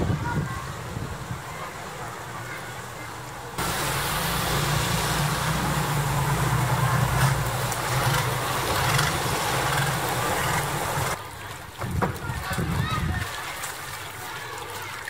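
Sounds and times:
water noise: 0.0s - 15.0s
wind: 0.0s - 15.0s
boat engine running: 3.6s - 11.2s.

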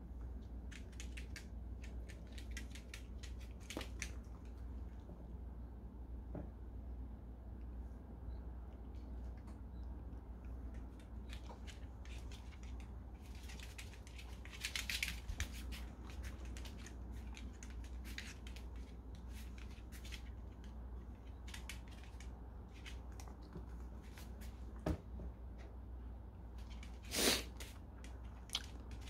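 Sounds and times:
dog claws clicking on floor: 0.6s - 4.7s, 10.6s - 24.5s.

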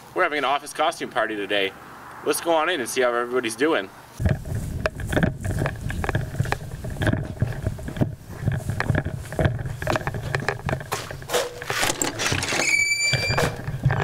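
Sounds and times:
footsteps on a porch: 4.2s - 14.0s
glass door opening: 11.0s - 14.0s
door squeak: 11.4s - 14.0s.

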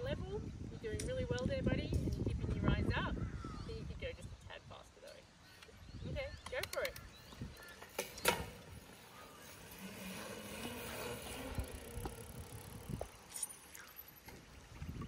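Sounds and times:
bike tyres rolling on asphalt: 6.8s - 15.0s.

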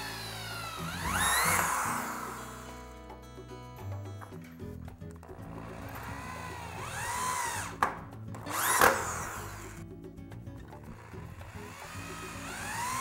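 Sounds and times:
power drill whirring: 0.0s - 3.2s, 5.2s - 9.8s, 10.9s - 13.0s
background music with bass line: 0.0s - 13.0s.

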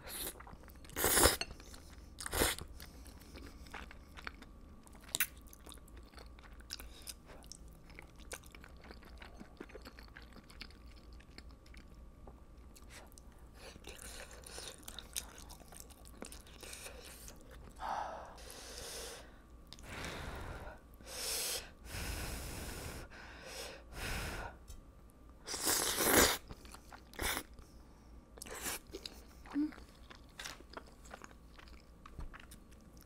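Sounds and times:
chewing and crunching food: 0.0s - 17.8s, 26.0s - 33.0s.

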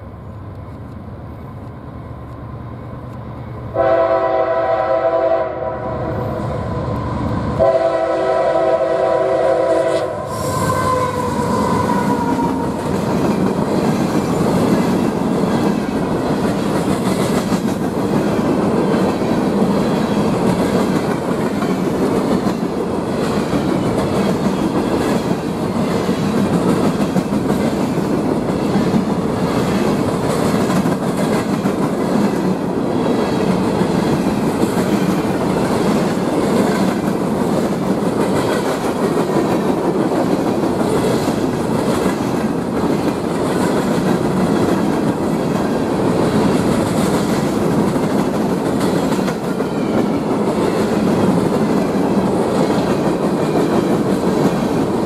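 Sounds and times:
locomotive horn blasts: 3.7s - 6.2s, 7.6s - 12.4s.

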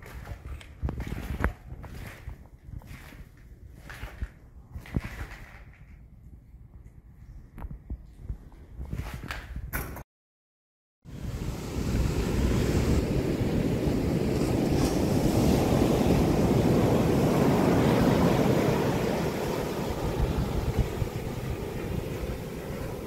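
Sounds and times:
ocean surf breaking on beach: 11.1s - 23.0s.

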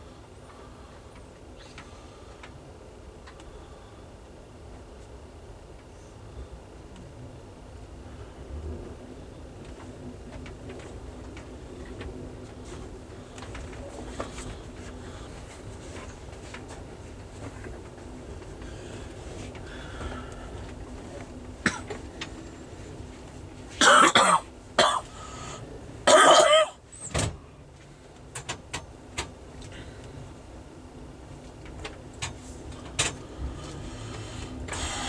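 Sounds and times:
train rumble: 0.0s - 35.0s
person coughing: 21.6s - 22.0s, 23.8s - 25.1s, 26.1s - 26.8s.

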